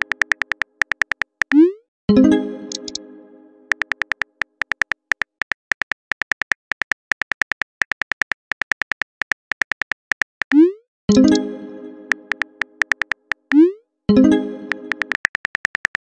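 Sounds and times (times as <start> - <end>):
phone keyboard key ticks: 0.0 - 1.6, 2.8 - 3.0, 3.7 - 10.6, 12.3 - 13.6, 14.9 - 16.0.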